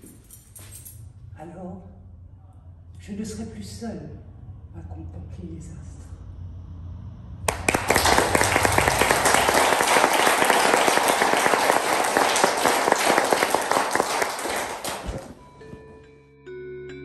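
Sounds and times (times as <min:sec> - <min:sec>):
audience applauding: 0:07.5 - 0:15.4.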